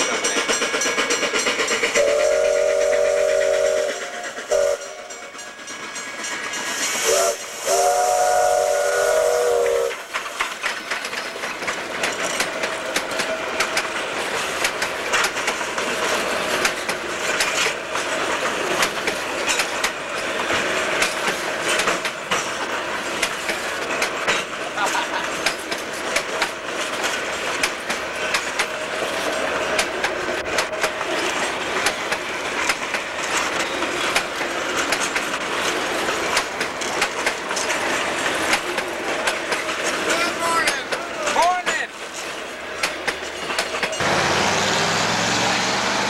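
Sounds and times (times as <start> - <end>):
steam locomotive chime whistle: 0.0 - 10.0
hissing steam: 0.0 - 46.0
train wheels clattering over rails: 0.0 - 46.0.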